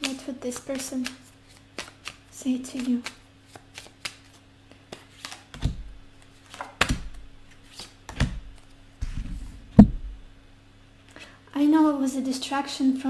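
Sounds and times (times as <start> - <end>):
cards tapping together: 0.0 - 8.7
cards shuffling rustle: 0.0 - 9.4.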